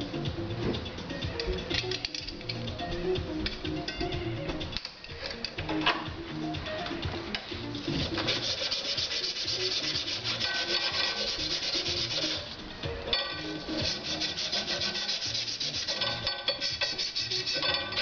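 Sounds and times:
sanding steel rod: 0:07.8 - 0:12.5, 0:13.6 - 0:18.0.

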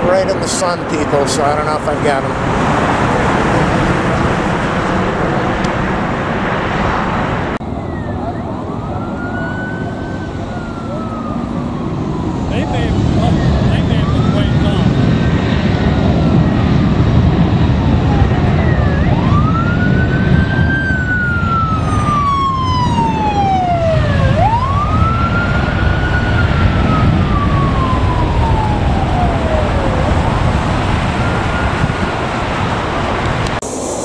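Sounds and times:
low rumble of traffic: 0:00.0 - 0:34.0
ambulance siren wailing: 0:07.5 - 0:33.2.

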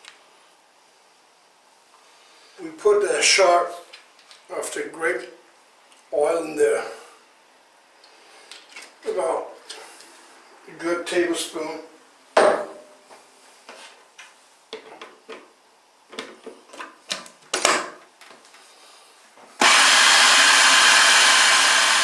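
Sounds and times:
food processor motor running: 0:19.6 - 0:22.0.

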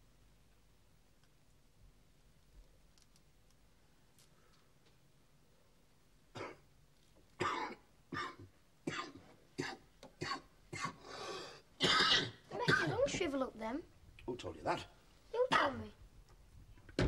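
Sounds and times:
person coughing: 0:06.4 - 0:06.6, 0:07.4 - 0:11.0, 0:11.8 - 0:13.1.

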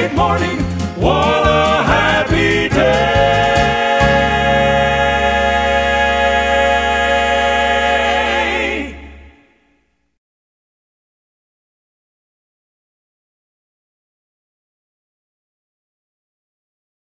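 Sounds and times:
steady bass: 0:00.0 - 0:09.4
gospel choir holding a chord: 0:00.0 - 0:09.8.

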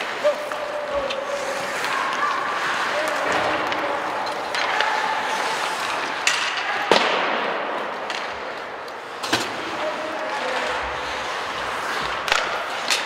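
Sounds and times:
sharp hockey clacks: 0:11.9 - 0:13.0.

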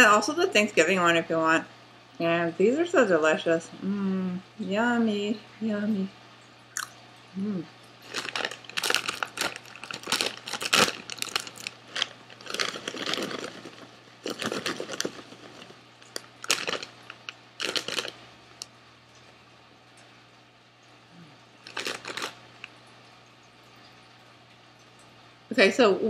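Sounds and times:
plastic bag crinkling: 0:08.0 - 0:18.7, 0:21.6 - 0:22.7.

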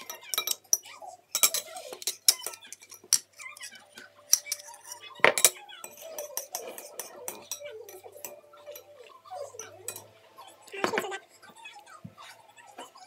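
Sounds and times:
fork clinking on a plate: 0:00.0 - 0:10.1.

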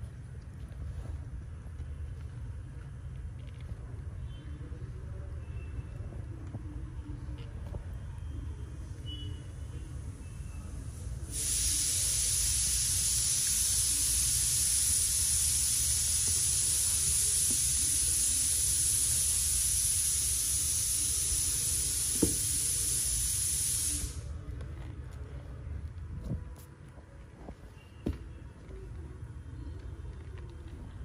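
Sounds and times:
steady hiss: 0:10.7 - 0:24.4.

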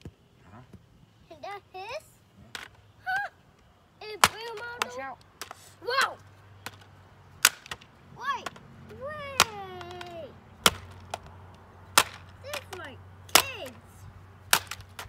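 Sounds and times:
heavy blows smashing plastic: 0:12.0 - 0:12.3.

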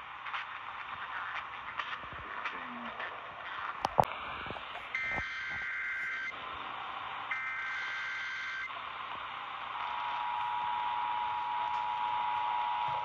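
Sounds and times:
radio hiss: 0:00.0 - 0:13.0
screechy digital burst: 0:04.7 - 0:06.4, 0:07.3 - 0:08.7
two-tone attention signal: 0:04.9 - 0:06.3, 0:07.3 - 0:08.7.

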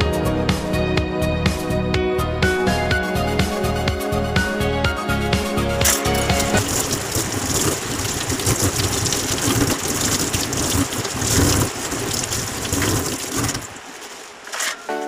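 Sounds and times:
tap water splashing in sink: 0:05.9 - 0:13.7.

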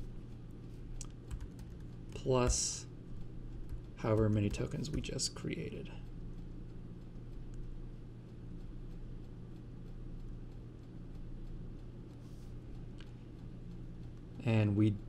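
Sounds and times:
low electrical hum: 0:00.0 - 0:15.0
computer keyboard key clicks: 0:01.0 - 0:01.9.

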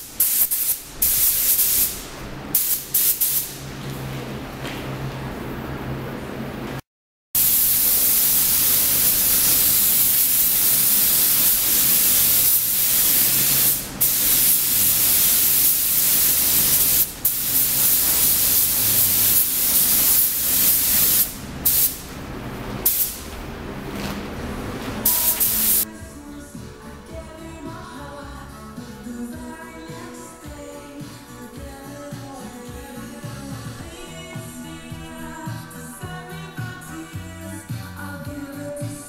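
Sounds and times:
paint spray gun hissing: 0:00.1 - 0:02.0, 0:02.6 - 0:03.6, 0:07.4 - 0:22.0, 0:25.0 - 0:25.9.

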